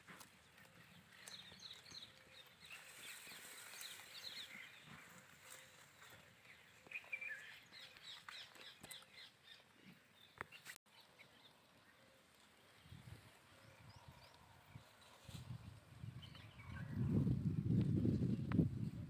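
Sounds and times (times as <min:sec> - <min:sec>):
low rumble of wind: 0:11.3 - 0:19.0.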